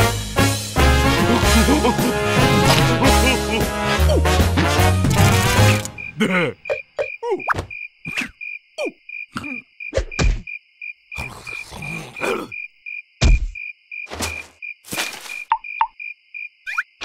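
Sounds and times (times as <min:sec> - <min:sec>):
comic sound effects: 0:01.1 - 0:04.4
crickets chirping: 0:05.4 - 0:17.0.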